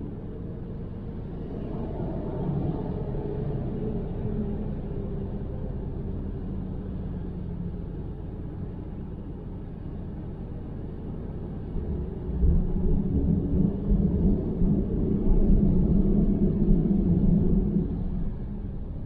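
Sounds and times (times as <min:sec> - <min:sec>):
car tyre and engine rumble: 0:00.0 - 0:19.0.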